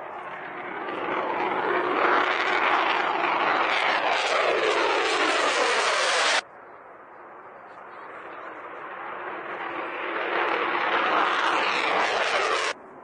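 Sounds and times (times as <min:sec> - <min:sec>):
jet engines passing overhead: 0:00.0 - 0:13.0.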